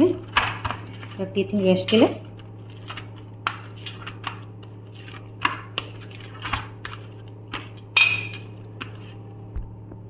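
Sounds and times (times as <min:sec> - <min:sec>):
hands slapping dough: 0:00.0 - 0:01.2, 0:01.9 - 0:09.7
steady low hum: 0:00.0 - 0:10.0
steel plate ringing: 0:08.0 - 0:08.5.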